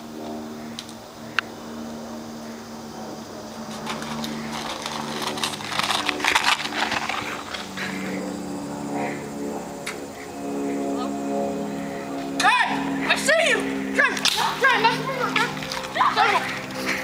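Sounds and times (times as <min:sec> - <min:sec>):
steady low hum: 0:00.0 - 0:17.0
running footsteps: 0:03.6 - 0:08.2, 0:12.9 - 0:17.0
rustling: 0:03.7 - 0:08.1.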